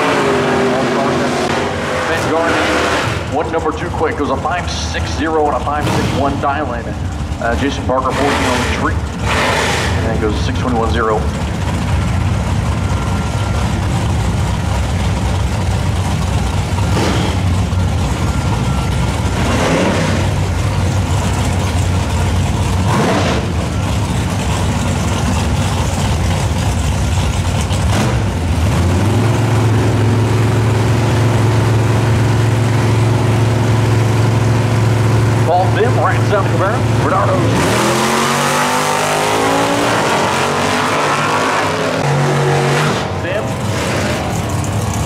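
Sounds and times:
engine held at high revs: 0.0 - 11.4, 13.1 - 45.0
car engines idling: 0.0 - 45.0
engine throttle blips: 0.0 - 45.0.

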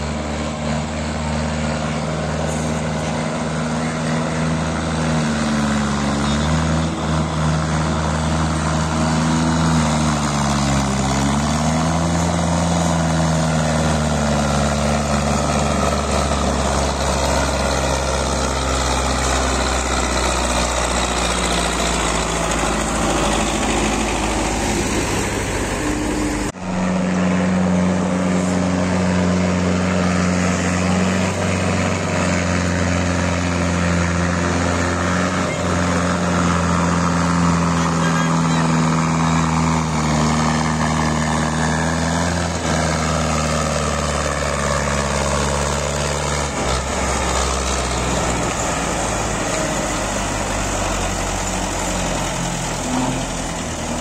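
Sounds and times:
diesel tractor engine under load: 0.0 - 54.0.

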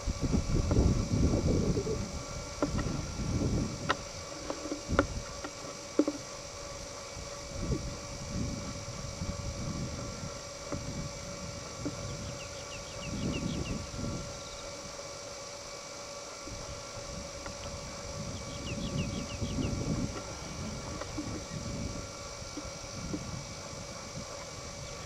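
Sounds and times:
wind buffeting microphone: 0.0 - 5.4, 7.1 - 14.4, 16.5 - 25.0
bird chirping: 12.0 - 14.7, 18.3 - 19.8
faint camera hum: 16.2 - 25.0.

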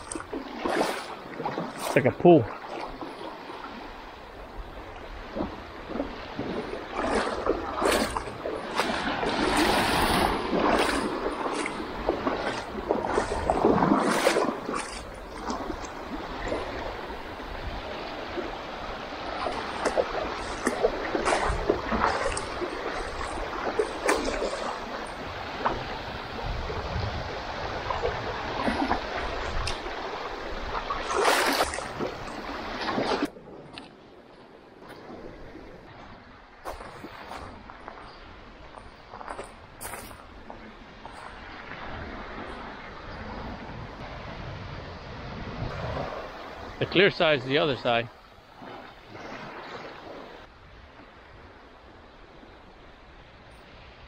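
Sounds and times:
small waves lapping over rocks: 0.0 - 34.0
wind buffeting microphone: 0.0 - 47.0
shallow seawater sloshing and splashing: 0.0 - 54.0.

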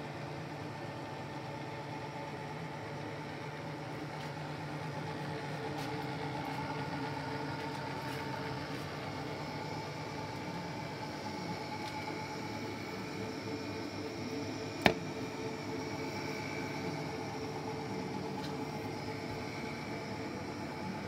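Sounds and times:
milling machine humming: 0.1 - 21.0.

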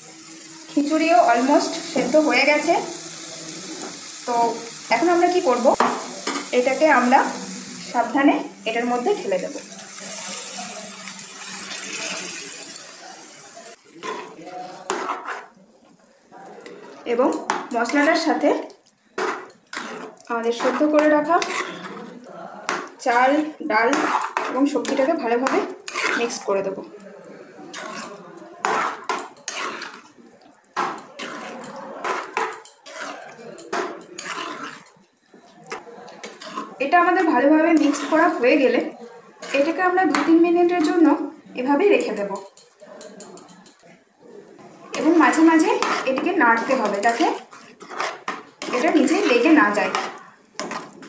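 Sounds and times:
food sizzling in a pan: 0.0 - 44.0, 44.6 - 51.0
metal clinking and scraping on pan: 5.0 - 7.1, 8.7 - 15.5, 16.6 - 26.6, 27.7 - 30.2, 30.8 - 41.1, 41.8 - 44.0, 44.9 - 51.0.

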